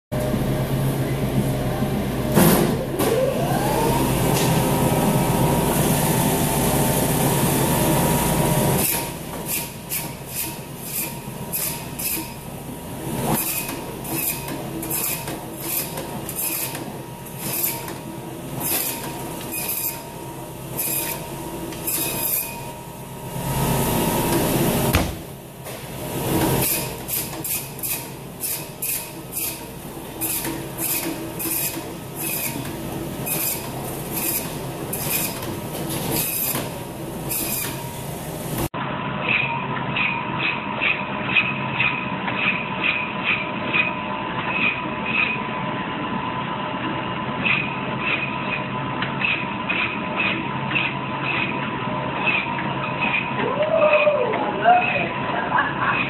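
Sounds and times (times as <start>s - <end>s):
band saw motor whine: 3.0s - 12.4s.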